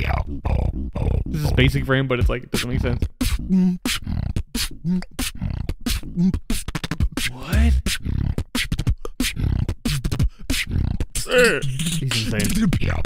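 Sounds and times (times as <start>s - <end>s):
beatbox beat: 0.0s - 13.0s
vocal rising sweep: 3.2s - 12.3s.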